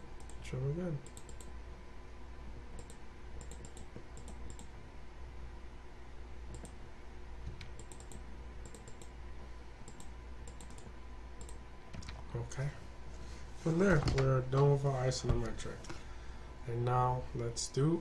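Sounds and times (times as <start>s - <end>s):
low steady hum: 0.0s - 18.0s
computer mouse clicking: 0.2s - 0.4s, 1.0s - 1.6s, 2.8s - 4.7s, 6.5s - 6.8s, 7.4s - 9.2s, 9.8s - 12.2s.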